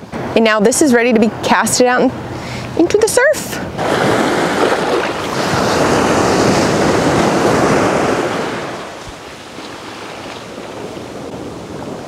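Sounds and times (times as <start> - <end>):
ocean surf breaking: 3.6 - 12.0.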